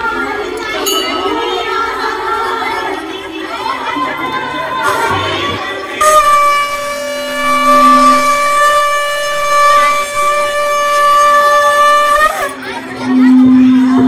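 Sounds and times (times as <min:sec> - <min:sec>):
conch shell blown: 0:06.0 - 0:14.0.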